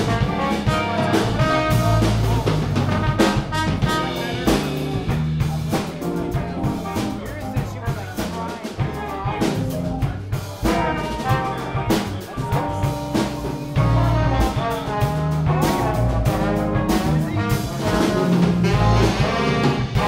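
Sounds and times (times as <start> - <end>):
brass section holding notes: 0.0 - 5.0, 10.6 - 20.0
drums keeping steady beat: 0.0 - 20.0
funk jazz band playing: 0.0 - 20.0.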